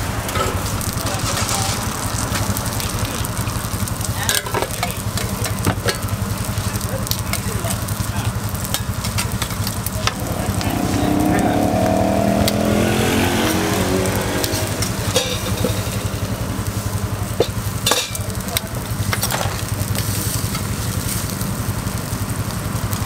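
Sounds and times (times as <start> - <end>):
burger patties sizzling on griddle: 0.0 - 23.0
metal spatula scraping hot plate: 14.5 - 16.8.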